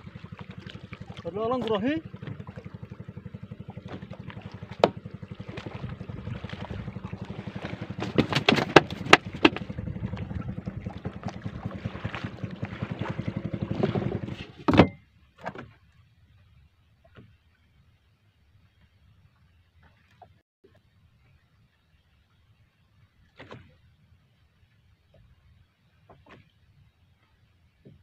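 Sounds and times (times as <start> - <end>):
small boat engine puttering: 0.0 - 15.9
sharp knocks: 7.9 - 9.8.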